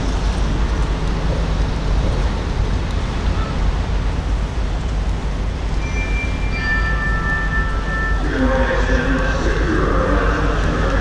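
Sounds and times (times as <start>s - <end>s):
low rumble: 3.9s - 11.0s.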